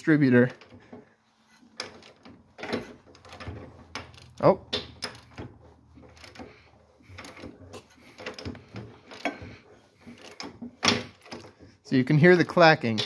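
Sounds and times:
engine clacking while cranked by hand: 1.7 - 11.8.

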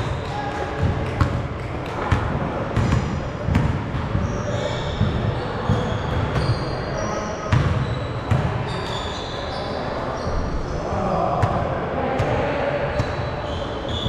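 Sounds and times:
basketball bouncing on court floor: 0.0 - 6.7, 7.5 - 8.5
sneaker squeaks: 2.8 - 10.8, 12.9 - 14.0.

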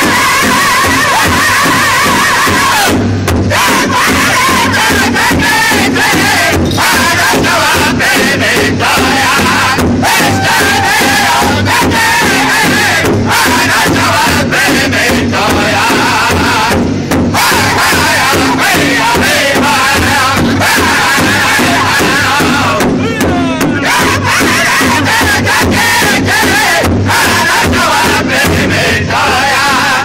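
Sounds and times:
large hand drum beat: 0.0 - 30.0
men singing in unison: 0.0 - 30.0.

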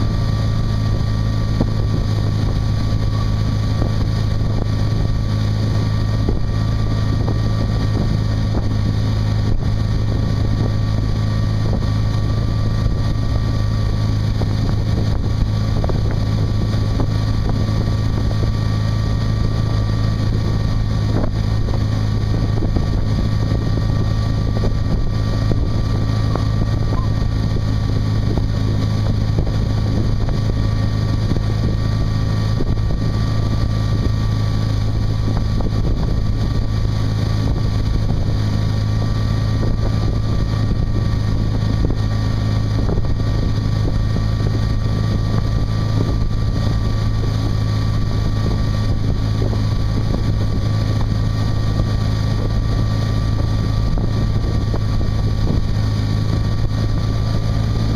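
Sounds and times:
boat engine drone: 0.0 - 57.9
faint engine whine: 0.0 - 57.9
wind on microphone: 0.0 - 57.9.

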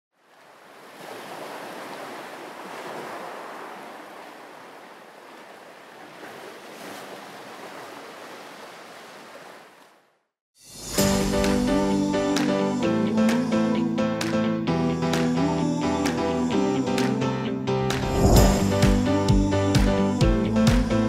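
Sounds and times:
ocean surf washing onto beach: 0.3 - 9.8.

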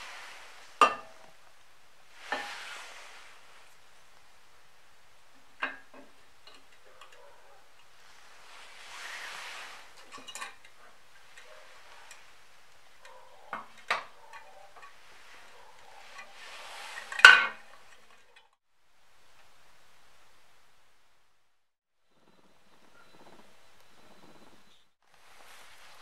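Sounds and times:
glass jar clinking on metal: 10.0 - 10.7.

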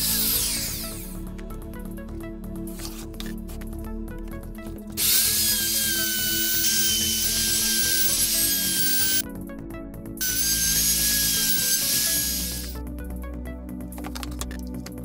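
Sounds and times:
router whining while cutting wood: 0.0 - 1.1, 5.0 - 9.2, 10.2 - 12.8.

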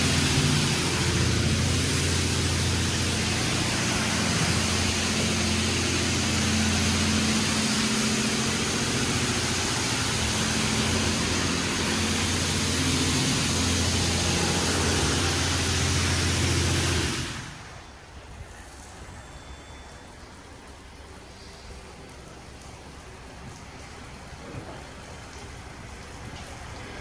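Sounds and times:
low machine hum: 0.0 - 19.2
car wash water jets spraying: 0.0 - 27.0.

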